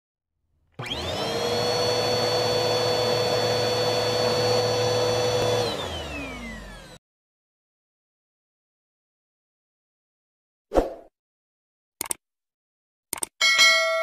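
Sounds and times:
vacuum motor whine: 0.8s - 7.0s.

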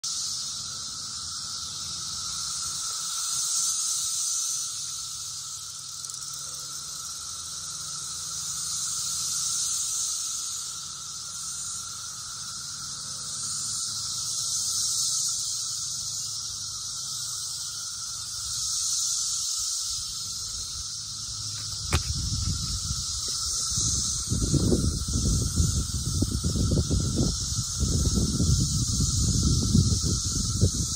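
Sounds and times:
cicadas droning: 0.0s - 30.9s.

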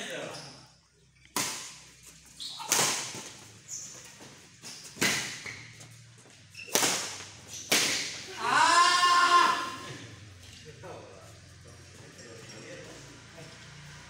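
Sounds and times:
rackets smacking shuttlecock: 1.3s - 3.5s, 4.8s - 5.8s, 6.6s - 8.3s.

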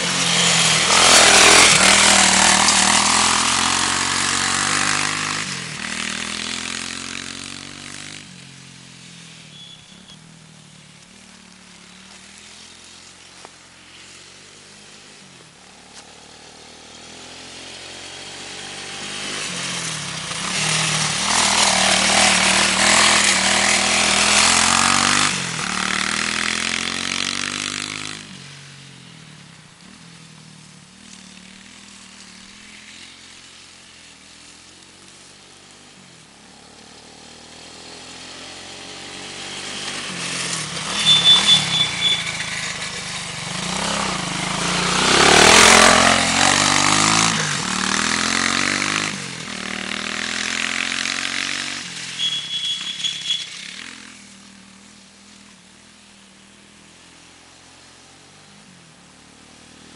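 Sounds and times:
quad engine revving: 0.0s - 8.2s, 17.0s - 28.3s, 36.7s - 54.1s.

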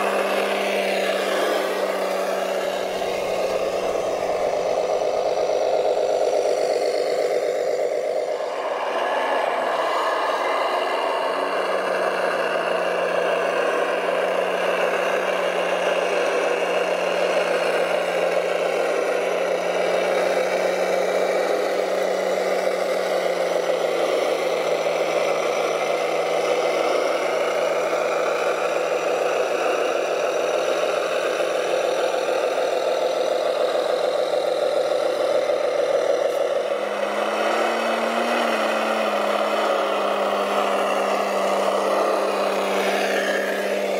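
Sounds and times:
model trucks engine drone: 0.0s - 43.9s.

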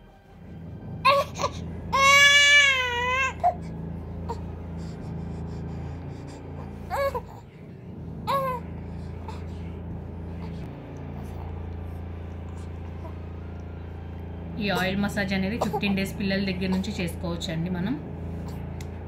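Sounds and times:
steady low hum: 0.0s - 19.0s
infant crying: 1.1s - 3.7s, 6.4s - 7.6s, 8.2s - 9.7s.

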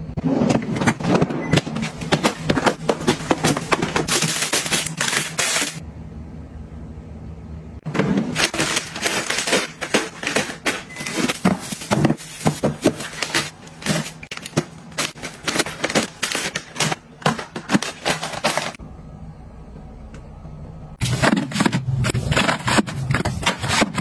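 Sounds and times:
packages tapping plastic drawer: 0.4s - 5.6s, 8.0s - 18.8s, 21.0s - 24.0s
plastic wrappers crinkling: 1.9s - 5.8s, 8.4s - 18.8s.

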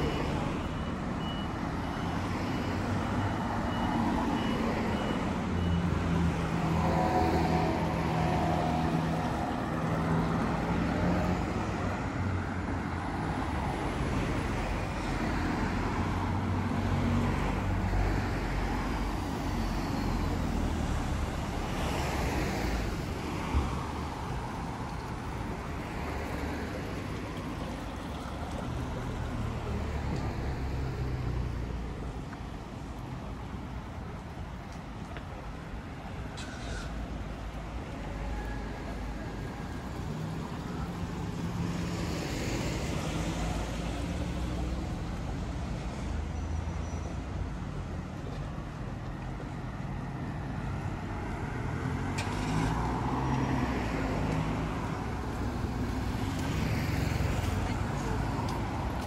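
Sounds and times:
vehicle engines passing: 0.0s - 59.0s
reversing alarm beeping: 0.1s - 6.0s.

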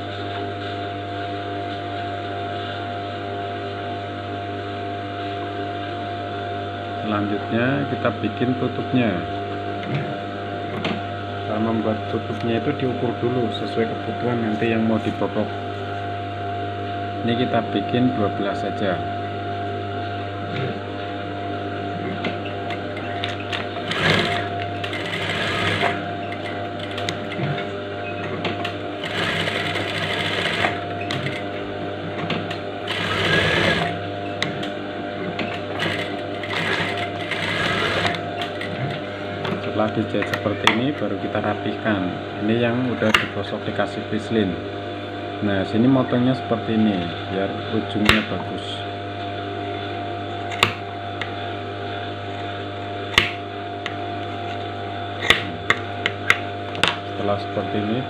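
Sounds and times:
motor hum: 0.0s - 58.0s
sewing machine stitching: 23.0s - 27.0s, 29.0s - 31.4s, 32.9s - 33.9s, 35.6s - 38.7s.

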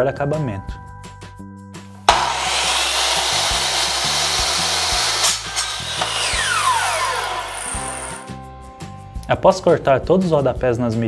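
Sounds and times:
miter saw cutting: 2.1s - 8.4s
saw blade winding down whine: 2.1s - 8.4s.

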